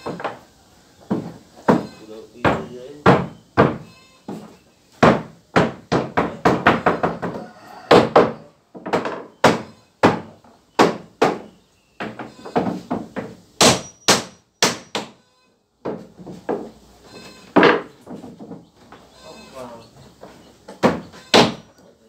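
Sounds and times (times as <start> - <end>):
hammer knocking on floorboards: 1.0 - 15.2, 15.8 - 16.7, 17.6 - 18.7, 20.7 - 21.7.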